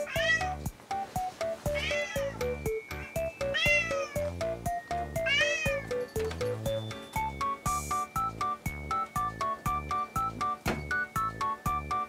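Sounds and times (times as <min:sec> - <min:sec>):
cat meowing: 0:00.0 - 0:00.6, 0:01.7 - 0:02.4, 0:03.5 - 0:04.3, 0:05.2 - 0:05.9
background music with plucked notes: 0:00.0 - 0:12.0.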